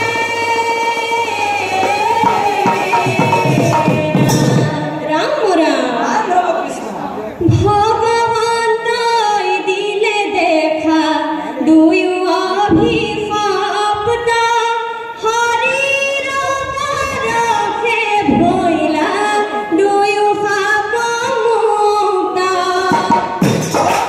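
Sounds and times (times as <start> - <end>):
mixed chorus singing chant: 0.0 - 7.3.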